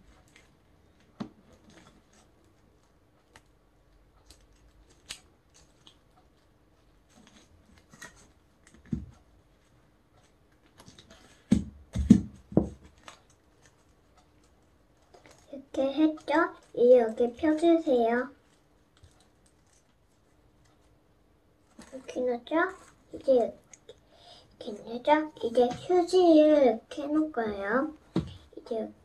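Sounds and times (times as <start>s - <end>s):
dull thumps: 11.4s - 12.8s, 28.1s - 28.5s.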